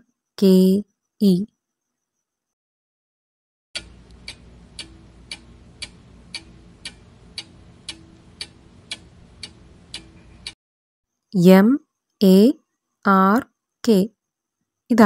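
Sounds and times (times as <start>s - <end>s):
faint steady background: 0.0s - 2.6s, 3.8s - 15.0s
clock ticking: 3.8s - 10.6s.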